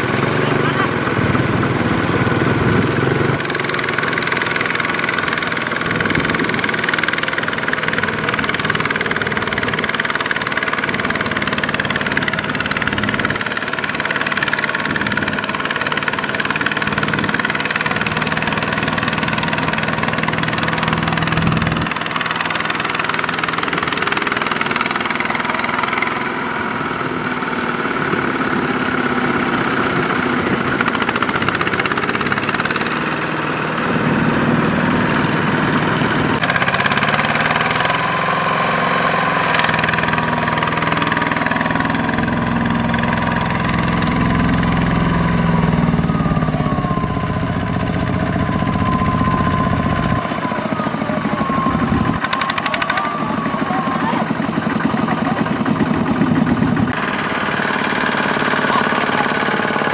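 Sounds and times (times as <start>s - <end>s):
single-cylinder diesel engine running: 0.0s - 59.9s.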